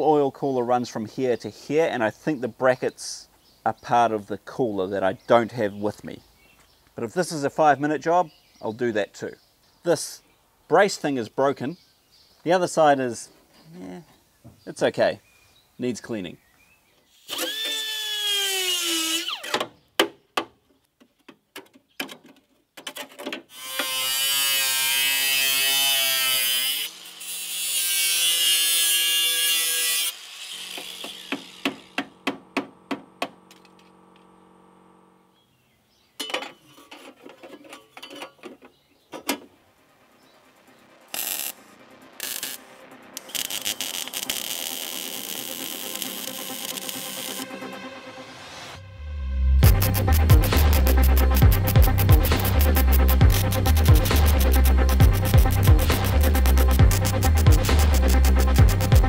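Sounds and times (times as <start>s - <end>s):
power tool cutting metal: 17.1s - 19.6s, 23.5s - 32.3s, 41.1s - 48.4s, 49.6s - 59.0s
power tool whining: 17.1s - 19.7s, 23.5s - 35.4s, 41.1s - 48.0s
electric welding hiss: 41.0s - 47.8s, 49.6s - 59.0s.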